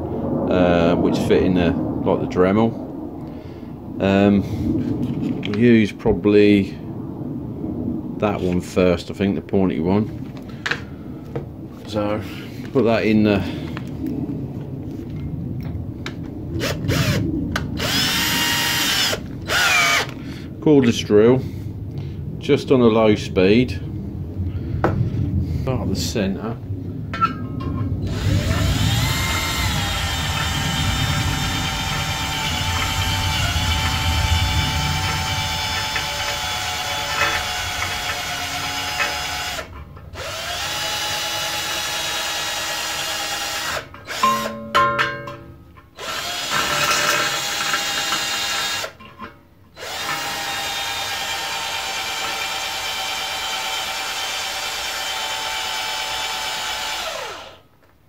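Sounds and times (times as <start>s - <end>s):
cordless drill grinding metal: 16.6s - 17.2s, 17.8s - 20.2s, 28.0s - 44.7s, 46.0s - 57.6s.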